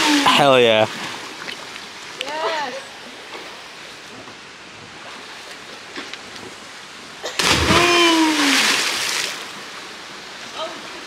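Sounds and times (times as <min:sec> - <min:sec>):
flowing water: 0:00.0 - 0:11.0
loud splash into water: 0:07.4 - 0:09.4
person shouting: 0:07.6 - 0:08.6.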